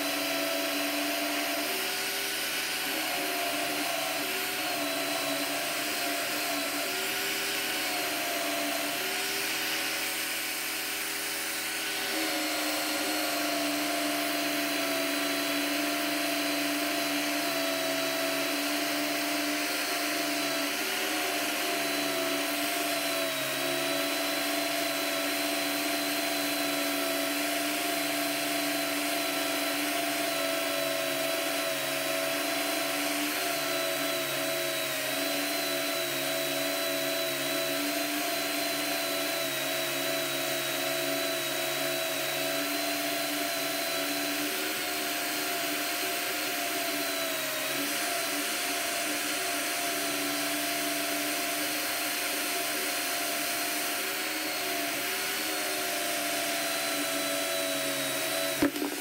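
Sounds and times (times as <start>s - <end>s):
power drill wire brush whine: 0.0s - 59.0s.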